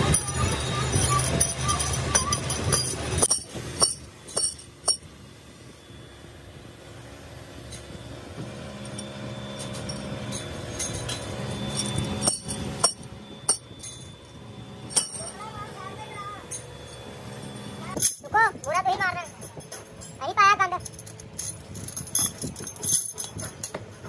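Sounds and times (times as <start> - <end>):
metal wrenches clinking: 0.0 - 5.1, 8.8 - 14.3, 14.9 - 15.5, 16.5 - 24.0
low steady hum: 0.0 - 24.0.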